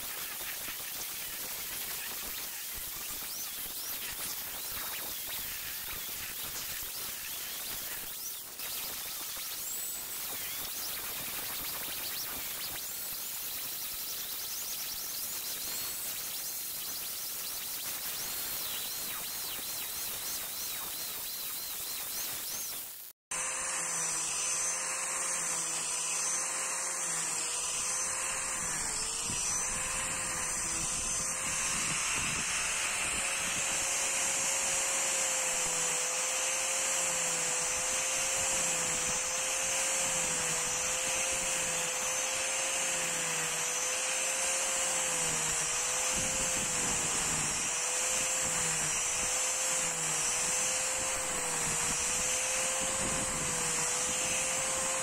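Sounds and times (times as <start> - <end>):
angle grinder shaving wood: 0.0 - 55.0.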